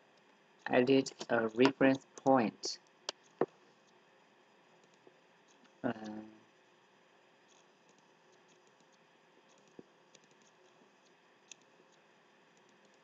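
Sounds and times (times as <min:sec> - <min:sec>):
faint computer mouse clicks: 0:07.5 - 0:12.0.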